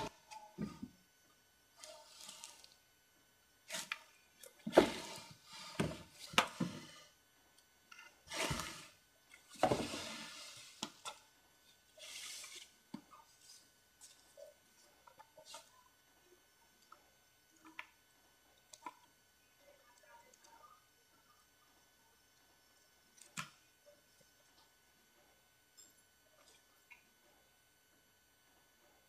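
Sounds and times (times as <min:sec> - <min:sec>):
rustling and scraping: 0:03.7 - 0:07.1, 0:08.0 - 0:11.2, 0:12.0 - 0:15.8
drawer and box sliding: 0:04.7 - 0:07.0, 0:08.3 - 0:09.0, 0:09.6 - 0:10.7.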